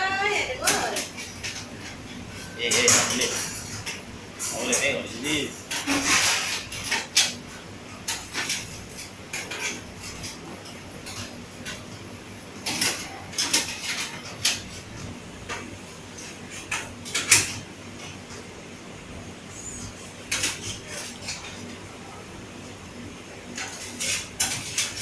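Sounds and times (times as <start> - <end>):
dishes and cutlery clinking: 0.6 - 11.9, 12.6 - 14.8, 23.5 - 25.0.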